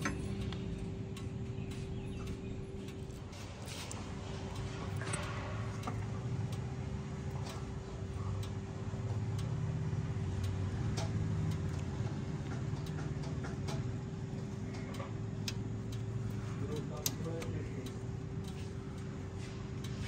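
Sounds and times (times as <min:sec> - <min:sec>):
steady low hum: 0:00.0 - 0:20.0
small clicks and taps: 0:10.4 - 0:20.0.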